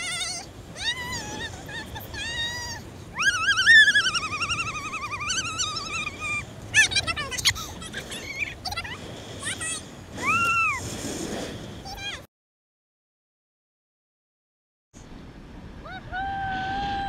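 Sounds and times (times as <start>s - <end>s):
high-pitched warbling squeals: 3.2s - 6.5s.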